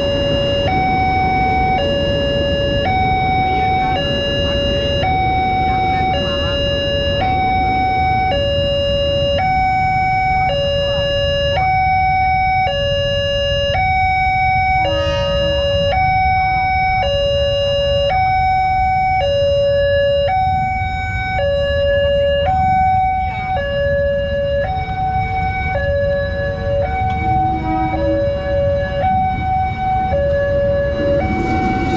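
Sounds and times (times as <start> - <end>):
two-tone crossing alarm: 0.0 - 31.9
low rumble: 26.2 - 31.9.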